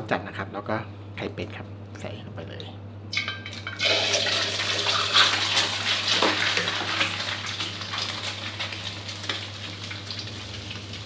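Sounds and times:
egg sizzling in hot oil: 0:03.2 - 0:11.0.

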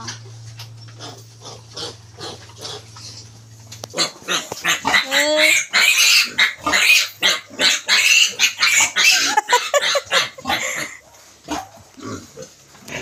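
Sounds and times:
piglets squealing: 0:03.9 - 0:12.2.

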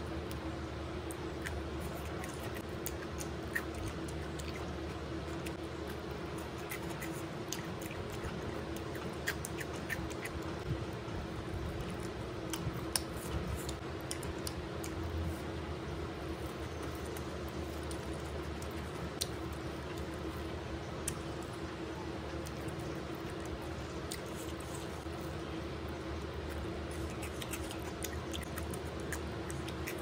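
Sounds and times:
steady background hum: 0:00.0 - 0:30.0
person chewing crunchy food: 0:01.0 - 0:15.5, 0:26.2 - 0:30.0.

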